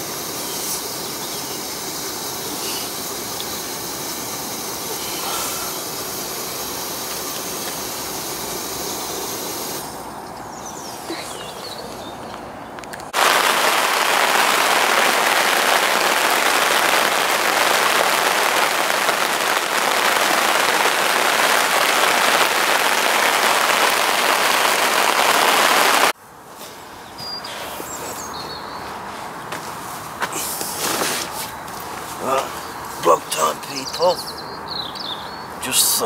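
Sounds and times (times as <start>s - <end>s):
heavy rain on water: 13.2s - 26.2s.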